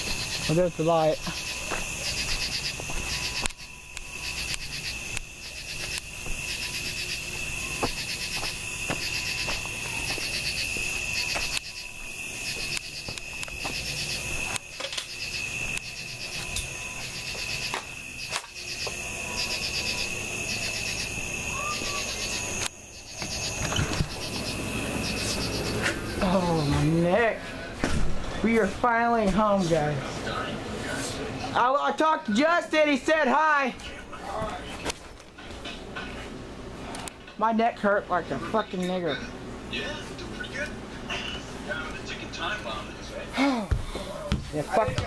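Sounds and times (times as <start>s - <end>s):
pulsing insect chirr: 0.0s - 27.3s
insects trilling: 0.0s - 27.4s.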